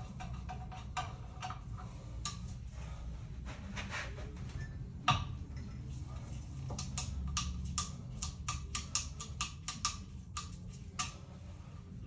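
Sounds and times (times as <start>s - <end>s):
low steady hum: 0.0s - 12.0s
valve tool clicking: 6.8s - 11.2s.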